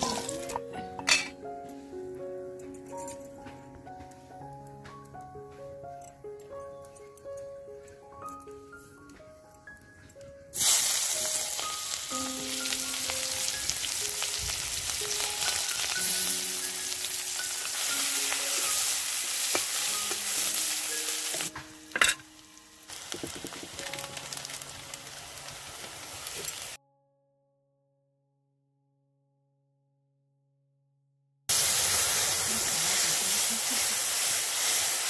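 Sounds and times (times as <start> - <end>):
onions sizzling in hot oil: 0.0 - 1.2, 10.6 - 26.8, 31.5 - 35.0
soft background music: 0.0 - 27.1.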